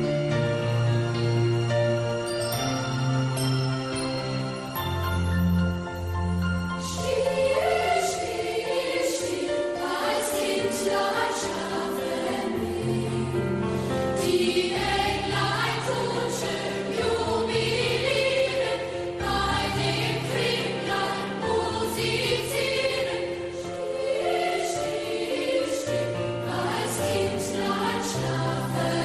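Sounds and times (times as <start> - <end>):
choir singing sacred music: 6.8 - 29.0.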